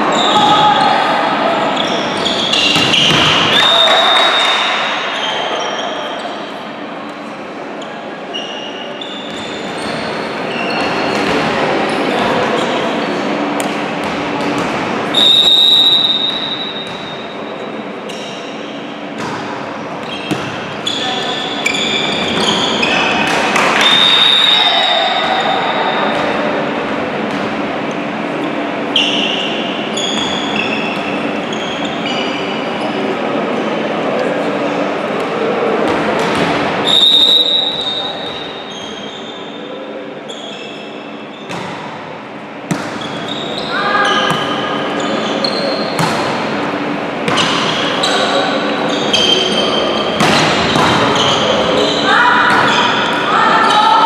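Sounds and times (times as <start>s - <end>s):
shoes squeaking on gym floor: 1.7s - 6.6s, 7.8s - 11.4s, 15.2s - 26.3s, 29.0s - 33.1s, 40.3s - 41.8s, 42.7s - 54.0s
referee's whistle: 1.8s - 6.1s, 15.1s - 16.8s, 23.8s - 25.5s, 36.8s - 39.4s
volleyball hits: 2.5s - 3.6s, 42.7s - 43.3s, 46.0s - 46.5s, 50.2s - 51.4s
referee's whistle blast: 15.1s - 16.8s, 36.8s - 38.3s
voices: 43.0s - 54.0s.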